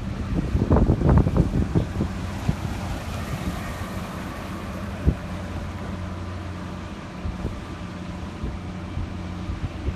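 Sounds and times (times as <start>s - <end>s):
low vehicle rumble: 0.0s - 9.9s
wind buffeting microphone: 0.0s - 9.9s.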